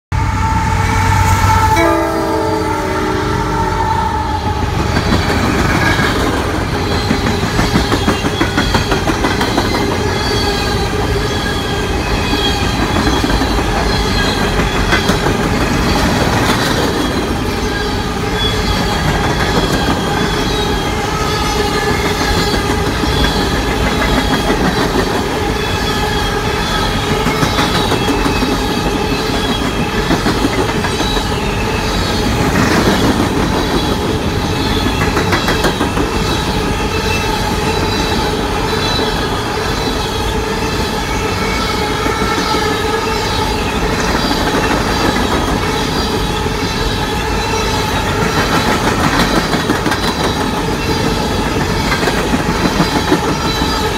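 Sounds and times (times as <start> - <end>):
locomotive horn chord: 0.1 - 4.8
train wheels ringing on rails: 4.2 - 53.9.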